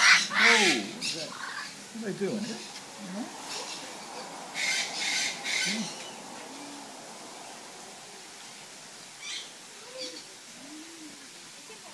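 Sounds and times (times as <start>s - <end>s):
macaw squawking: 0.0s - 1.8s.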